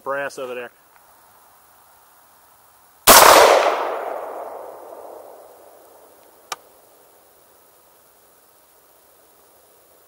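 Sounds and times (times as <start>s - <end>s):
rifle shot echoing: 3.1s - 6.0s.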